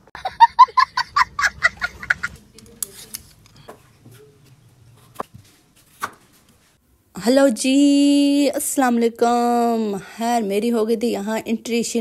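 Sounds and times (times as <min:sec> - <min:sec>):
small child laughing: 0:00.2 - 0:02.4.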